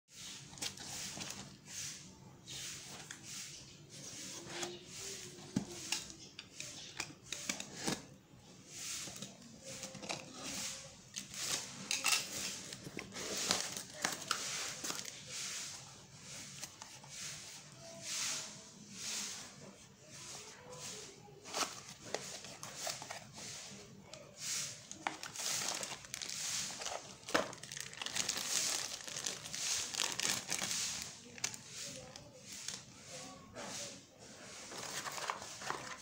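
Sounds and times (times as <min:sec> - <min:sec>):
crinkly rustling: 0:00.2 - 0:01.7, 0:08.9 - 0:17.5, 0:24.7 - 0:33.0, 0:34.4 - 0:36.0
cardboard parcel tearing: 0:24.9 - 0:31.6.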